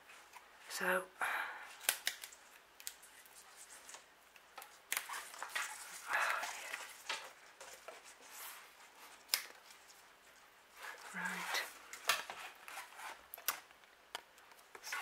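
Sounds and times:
bark and roots rustling: 1.8 - 13.8.

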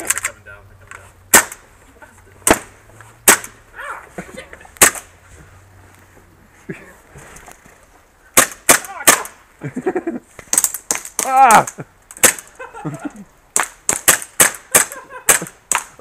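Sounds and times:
airsoft guns firing: 1.3 - 1.6, 8.4 - 9.4, 12.2 - 12.5, 13.6 - 16.0
person calling out: 8.8 - 9.3, 11.2 - 11.7.

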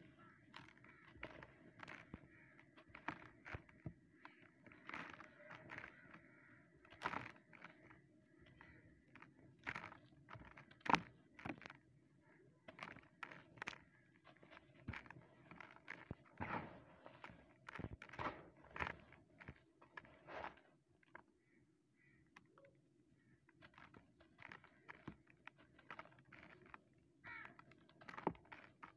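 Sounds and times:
crumbs and dust trickling: 0.0 - 28.9
dry chunk crunching in hands: 0.1 - 11.9, 12.6 - 21.3, 23.3 - 28.9.

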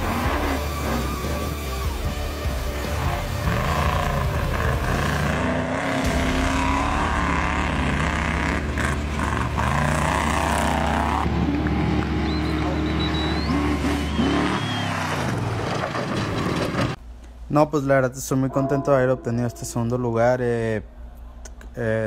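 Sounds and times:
truck engine revving hard: 0.0 - 17.0.

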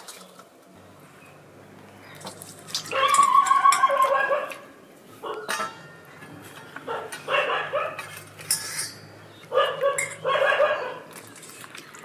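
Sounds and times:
steel dishes clinking: 2.2 - 3.9, 5.4 - 7.3, 8.0 - 9.4, 10.0 - 10.3
dog barking: 3.8 - 4.6, 6.9 - 8.0, 9.5 - 11.1.

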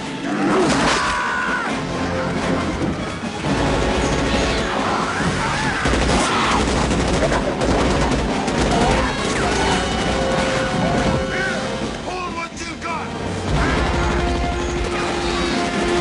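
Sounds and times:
film score music: 0.0 - 16.0
automatic rifles firing: 5.7 - 10.7.

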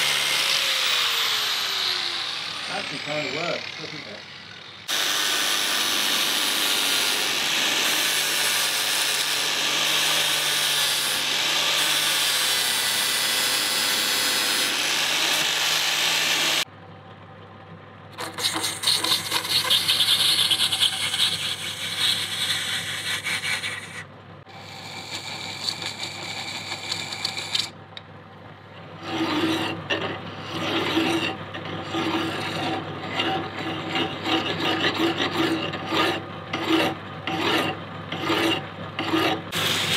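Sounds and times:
lathe humming: 0.0 - 16.7, 28.8 - 39.9
hand tool scraping brass: 18.2 - 24.0, 24.6 - 27.7, 29.0 - 39.9
sanding disc grinding brass: 18.2 - 24.0, 24.6 - 27.7, 29.0 - 39.9
file strokes on metal: 18.2 - 27.7, 29.0 - 39.9.

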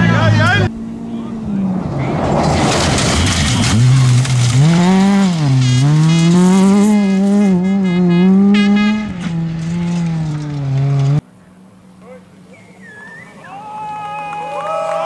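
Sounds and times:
rally car engine revving: 0.0 - 11.2
gravel spraying under tyres: 1.7 - 6.8.

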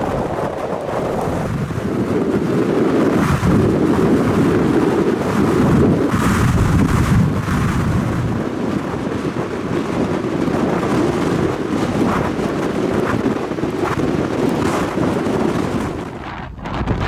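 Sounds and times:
storm waves crashing: 0.0 - 17.0
wind buffeting microphone: 0.0 - 17.0.

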